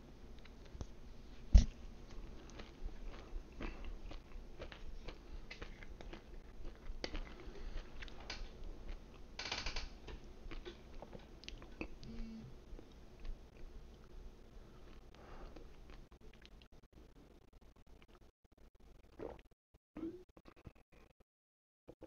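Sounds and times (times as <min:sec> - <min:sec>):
chewing with mouth clicks: 0:01.6 - 0:09.3, 0:10.2 - 0:12.1.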